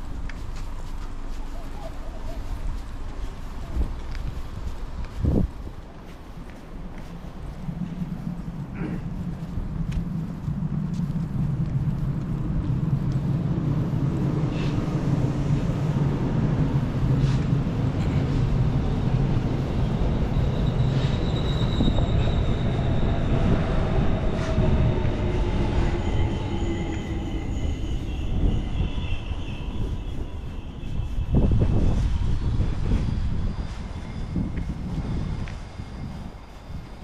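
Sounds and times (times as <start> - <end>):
railcars rumbling: 0.0 - 37.0
train wheel squeal: 14.1 - 37.0.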